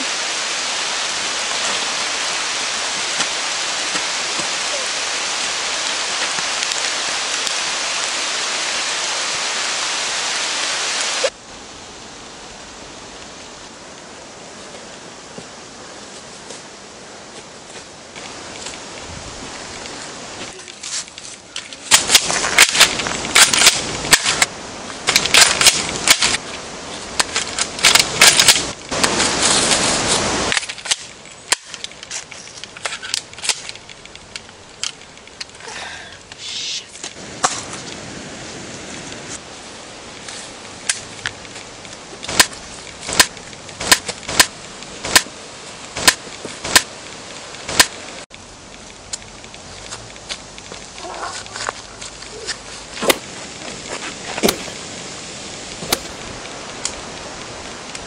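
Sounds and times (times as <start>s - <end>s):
gunfire: 53.0s - 53.3s, 54.4s - 54.8s, 55.8s - 56.2s.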